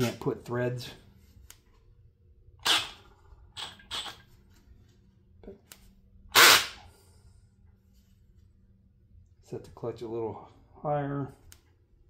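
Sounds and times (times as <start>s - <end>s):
cordless drill bursts: 6.4s - 6.7s.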